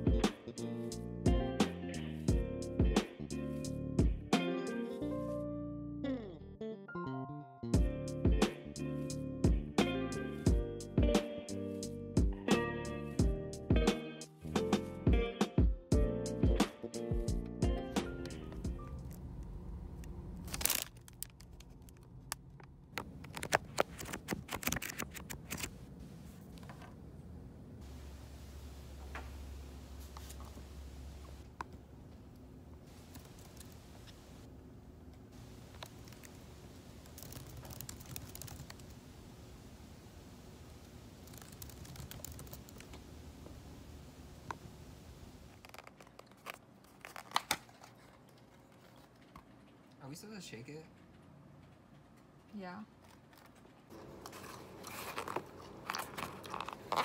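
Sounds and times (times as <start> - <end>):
low room hum: 17.3 - 57.0
paper bag rustling: 20.3 - 22.3, 23.0 - 26.7, 45.5 - 49.3, 53.3 - 57.0
paper pages flicking: 20.4 - 25.8, 33.0 - 34.2, 35.7 - 39.0, 41.1 - 43.1, 45.5 - 49.1.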